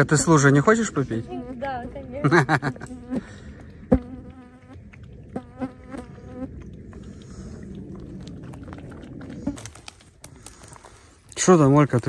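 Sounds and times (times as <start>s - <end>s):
insect buzzing: 0.0s - 6.6s.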